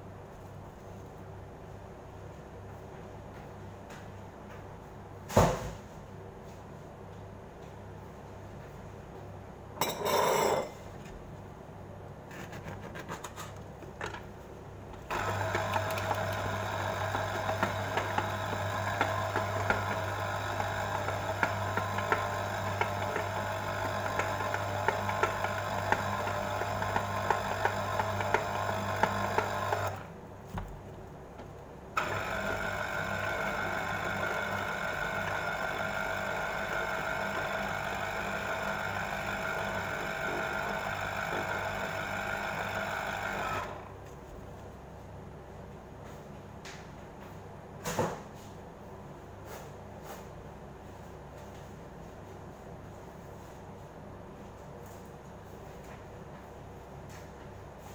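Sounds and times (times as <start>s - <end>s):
electric citrus juicer motor hum: 15.0s - 30.1s, 32.0s - 44.0s.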